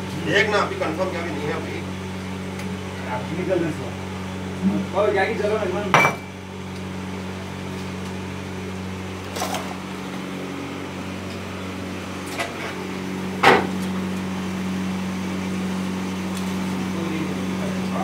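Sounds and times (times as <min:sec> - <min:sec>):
electric motor hum: 0:00.0 - 0:18.0.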